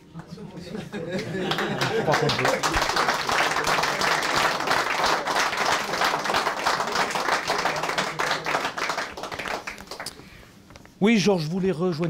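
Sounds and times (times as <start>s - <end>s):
people clapping: 1.1s - 10.4s.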